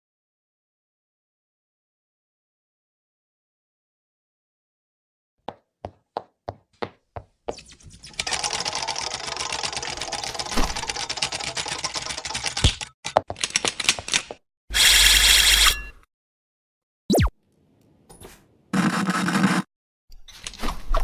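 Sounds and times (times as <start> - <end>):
typewriter-like clatter: 8.2 - 14.4.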